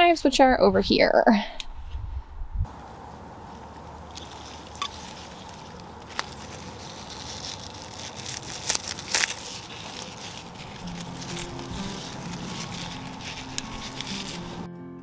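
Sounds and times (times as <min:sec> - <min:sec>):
steady outdoor hiss: 0:02.6 - 0:14.7
shears snipping stalks: 0:03.5 - 0:14.7.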